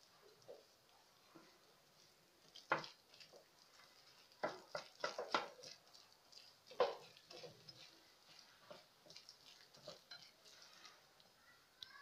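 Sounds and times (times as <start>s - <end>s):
whisk stirring dough: 0.0s - 11.8s
whisk tapping glass bowl: 4.2s - 5.8s.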